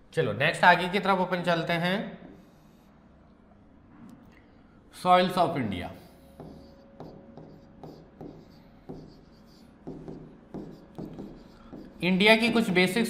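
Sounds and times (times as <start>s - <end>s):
stylus tapping and scraping on board: 6.2s - 12.8s.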